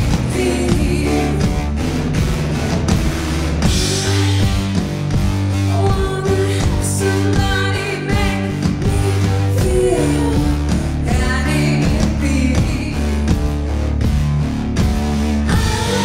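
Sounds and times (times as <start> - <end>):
person singing: 0.0 - 1.8, 5.6 - 13.2
bass and guitar: 0.0 - 16.0.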